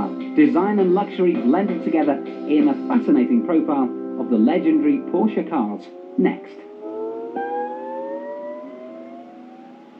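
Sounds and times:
higher engine note: 0:05.5 - 0:09.9
engine accelerating: 0:05.7 - 0:09.9.

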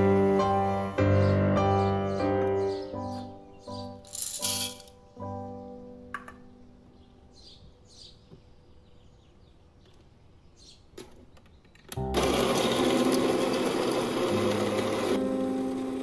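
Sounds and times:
coffee grinder motor running: 0:12.0 - 0:16.0.

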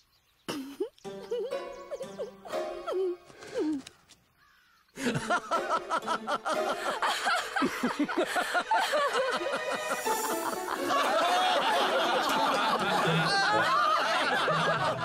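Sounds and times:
cartoon voices laughing: 0:00.5 - 0:03.2, 0:05.0 - 0:15.0
music: 0:01.1 - 0:03.6, 0:05.0 - 0:08.0, 0:08.7 - 0:12.0.

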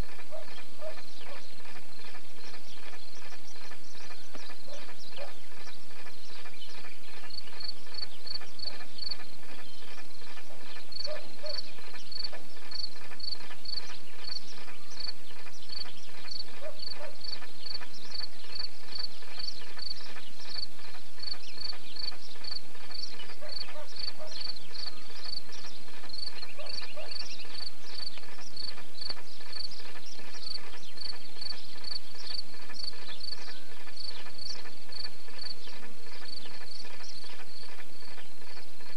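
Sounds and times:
crickets chirping: 0:00.0 - 0:38.9.

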